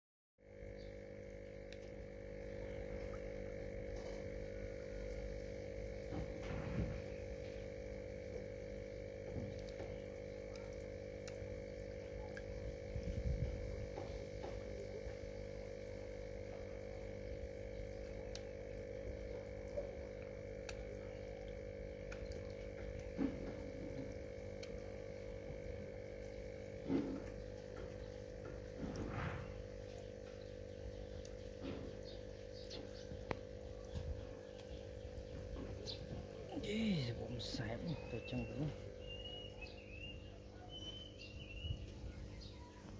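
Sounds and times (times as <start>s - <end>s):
steady hum: 0.6s - 42.9s
running water: 1.5s - 40.5s
fish splashing at surface: 18.0s - 30.2s.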